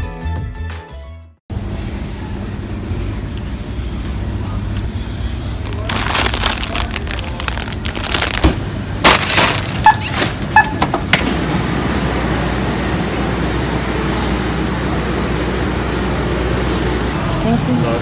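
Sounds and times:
busy cafe background hum: 0:01.5 - 0:18.0
plastic snack bag crinkling: 0:05.6 - 0:09.9.

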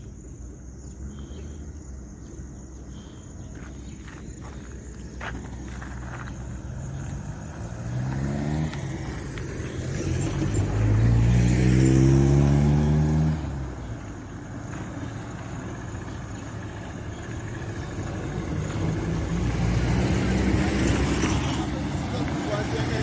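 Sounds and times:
vehicle engine accelerating past: 0:05.4 - 0:23.0.

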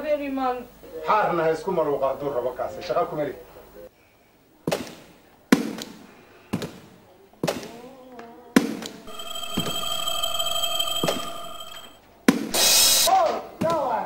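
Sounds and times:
sharp ringing hits: 0:09.1 - 0:13.1
steady ringing tone: 0:09.1 - 0:13.1.

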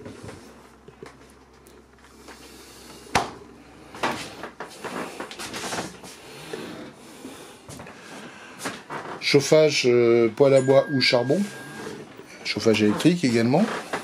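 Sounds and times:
rustling and scraping handling: 0:03.9 - 0:09.9, 0:11.0 - 0:14.0.

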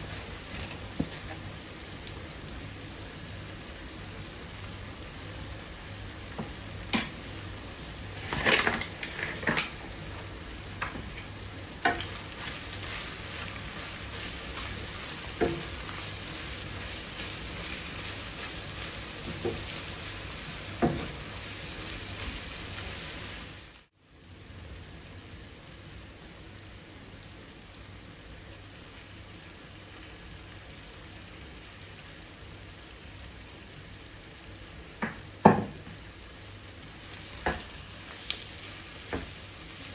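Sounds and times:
meat sizzling in a frying pan: 0:00.0 - 0:39.9
utensils knocking against pan: 0:06.9 - 0:07.3
wooden spatula stirring: 0:10.9 - 0:22.5.

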